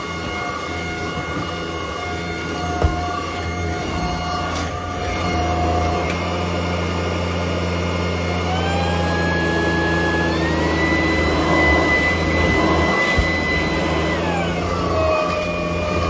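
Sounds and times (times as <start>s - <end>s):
cordless vacuum motor whine: 0.0s - 16.0s
light bump: 2.8s - 3.2s.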